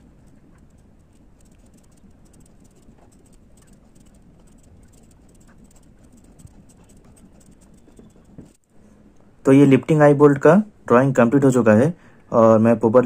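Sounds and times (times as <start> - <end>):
pencil scratching on paper: 0.0 - 8.6.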